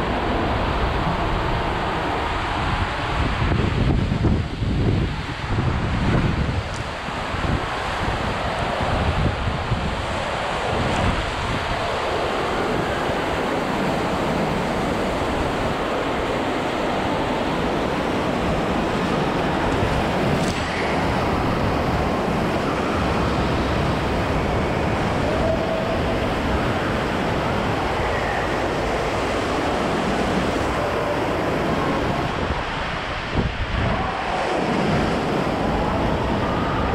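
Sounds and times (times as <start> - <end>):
rushing water on water slide: 0.0 - 36.9.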